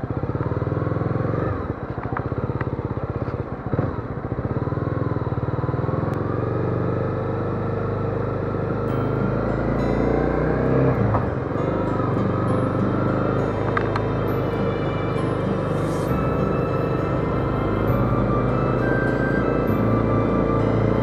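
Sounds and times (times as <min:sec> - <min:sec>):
motorcycle engine running: 0:00.0 - 0:21.0
road and wind noise: 0:00.0 - 0:21.0.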